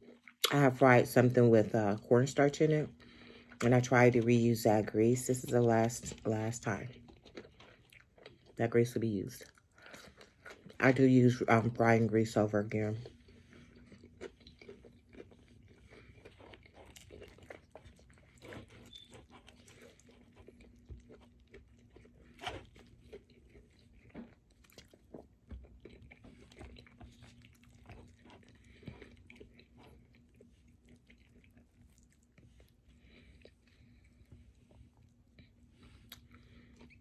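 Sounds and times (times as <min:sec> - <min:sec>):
faint steady hum: 0:00.0 - 0:37.0
person chewing: 0:06.9 - 0:08.6, 0:09.4 - 0:10.8, 0:13.0 - 0:37.0.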